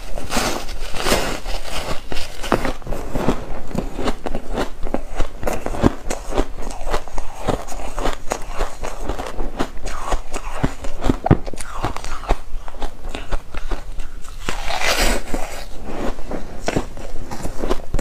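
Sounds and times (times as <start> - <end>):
crunching of foam ice: 0.0 - 15.8.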